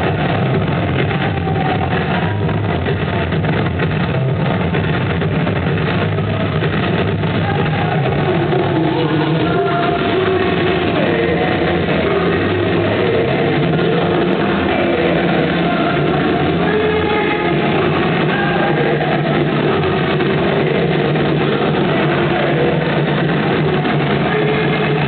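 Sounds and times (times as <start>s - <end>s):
music over speakers: 0.0s - 25.0s.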